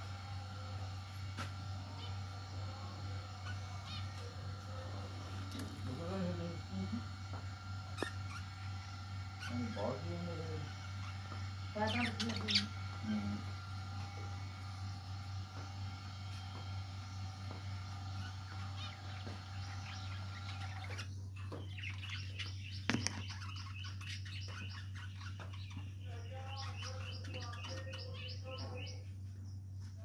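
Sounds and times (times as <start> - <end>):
steady low hum: 0.0 - 30.0
budgerigars chattering: 3.0 - 13.6, 18.1 - 29.0.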